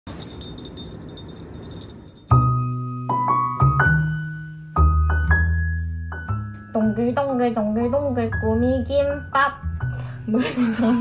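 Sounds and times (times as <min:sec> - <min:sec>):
slow piano tune: 0:02.3 - 0:11.0.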